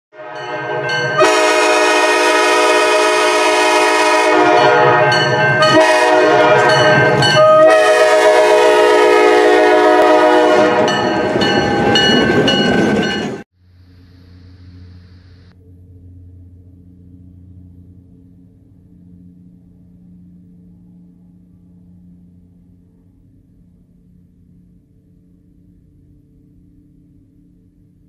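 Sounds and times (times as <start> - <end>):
diesel locomotive horn blasts: 0.1 - 12.1
locomotive engine rumble: 0.4 - 28.0
train wheels on rails: 4.4 - 13.4.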